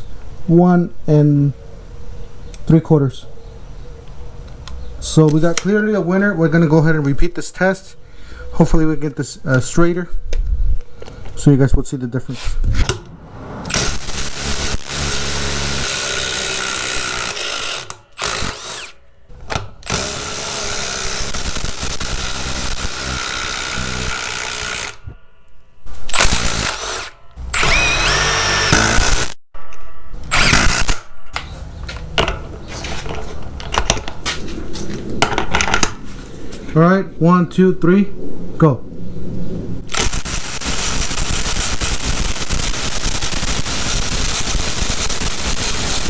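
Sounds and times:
impact drivers hammering screws into wood: 0:13.7 - 0:25.0, 0:26.1 - 0:29.3, 0:30.3 - 0:31.0.

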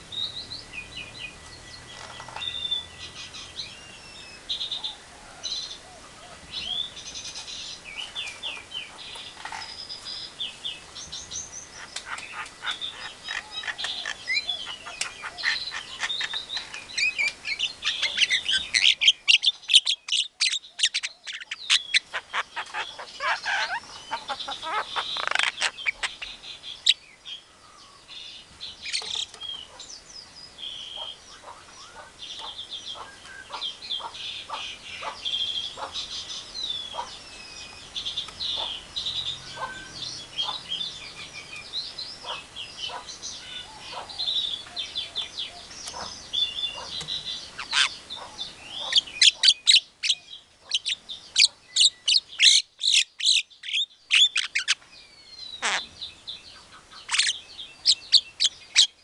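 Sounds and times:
loud sharp bird notes: 0:30.7 - 0:59.0.

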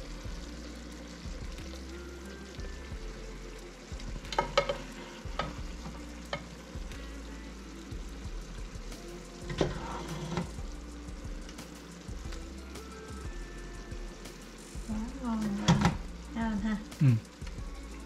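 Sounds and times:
utensil scraping a pan: 0:09.5 - 0:10.6.

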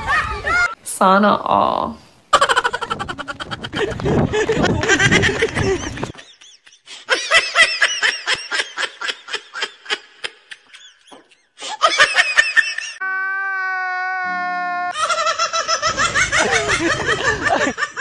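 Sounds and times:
high-pitched laughter: 0:02.3 - 0:13.1, 0:14.8 - 0:18.0.

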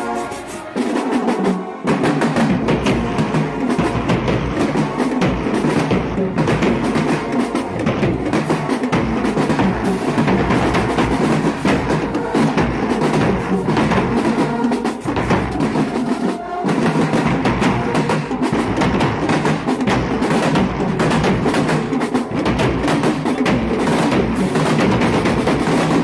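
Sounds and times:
marching band playing: 0:00.0 - 0:26.0
marching drums: 0:00.0 - 0:26.0.

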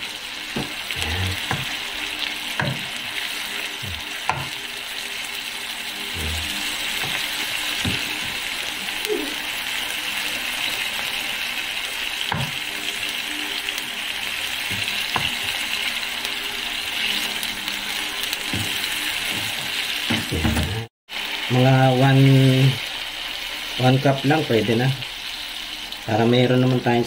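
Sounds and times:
fish sizzling in a pan: 0:00.0 - 0:27.0.

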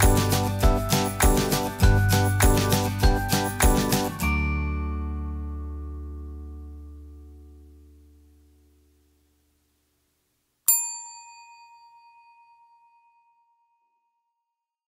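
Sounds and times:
bright bell ding: 0:00.0 - 0:05.4, 0:10.7 - 0:13.6.

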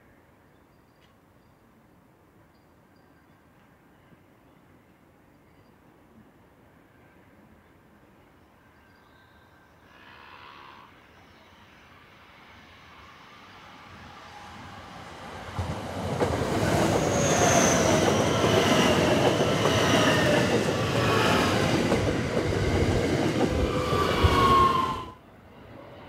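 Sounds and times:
train rolling past: 0:11.8 - 0:26.0.

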